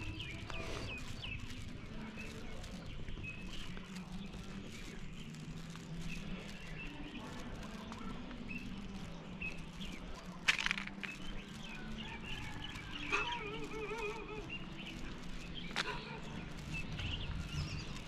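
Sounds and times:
small birds chirping: 0.0 - 18.0
wavering bird call: 13.0 - 14.6.

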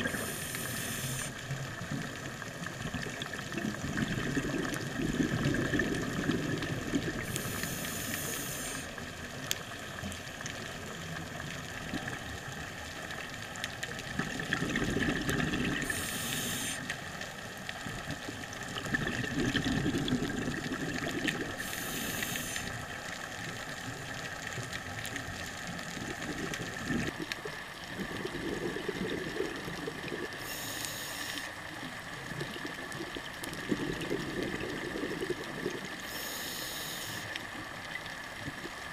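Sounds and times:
regulator inhale hiss: 0.0 - 1.4, 7.2 - 9.0, 15.8 - 17.0, 21.5 - 22.8, 30.4 - 31.6, 35.9 - 37.4
exhaled bubbles rumbling: 0.0 - 8.0, 9.1 - 30.6, 31.6 - 36.1.

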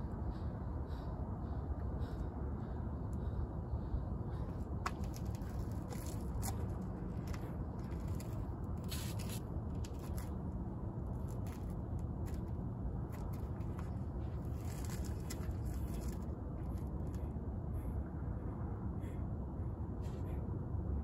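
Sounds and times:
low steady rumble: 0.0 - 21.0
scrapes on concrete: 4.9 - 10.3.

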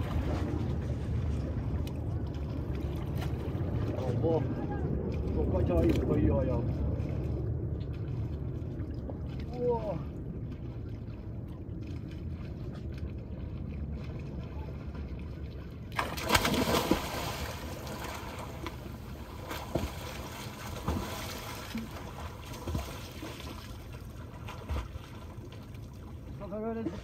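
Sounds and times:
sea water sloshing: 0.0 - 27.0
swimmer splashing: 15.9 - 27.0.

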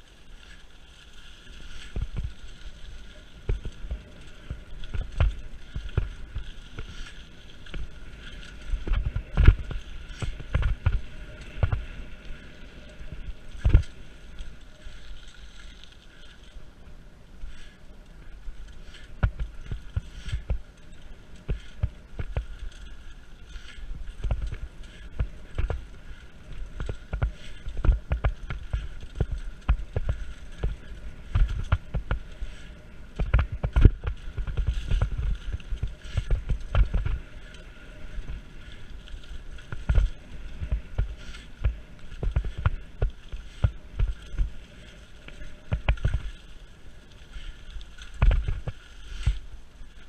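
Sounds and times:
bike tyres rolling over leaves: 0.0 - 50.0
bike knocks and rattles: 1.8 - 12.1, 18.8 - 46.4.

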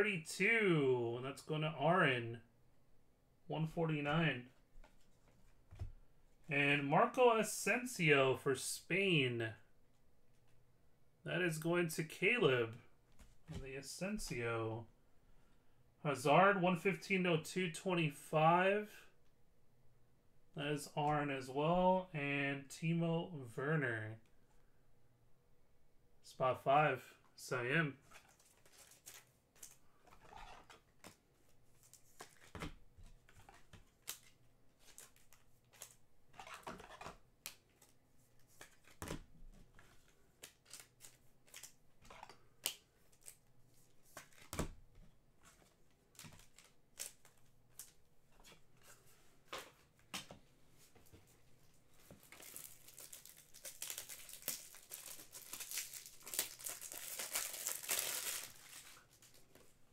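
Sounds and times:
plastic wrap crinkling and tearing: 52.2 - 59.5.

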